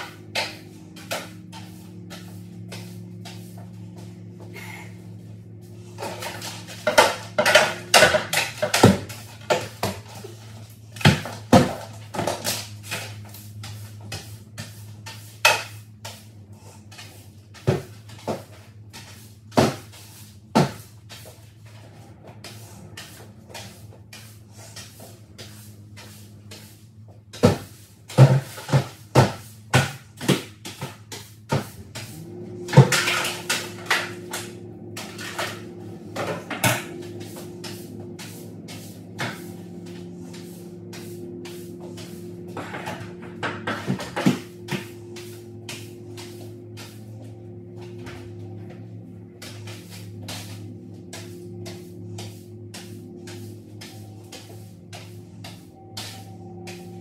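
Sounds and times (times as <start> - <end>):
household items knocking and clattering: 6.0 - 10.3.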